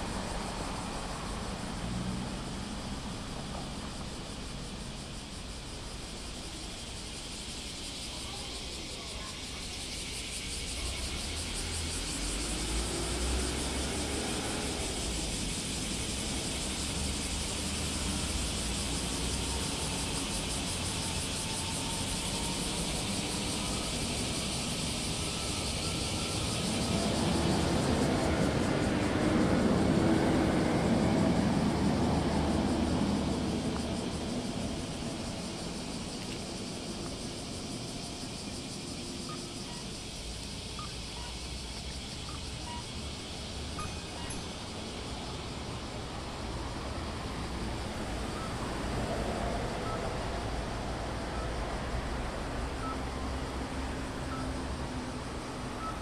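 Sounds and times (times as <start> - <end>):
traffic passing: 0.0 - 56.0
loud vehicle passing: 11.3 - 39.3, 44.6 - 56.0.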